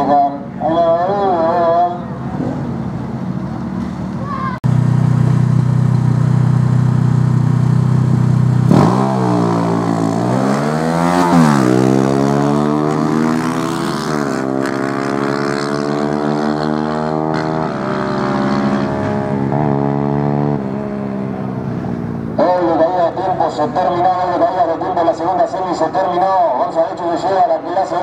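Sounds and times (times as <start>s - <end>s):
motorcycle engines revving: 0.0s - 28.0s.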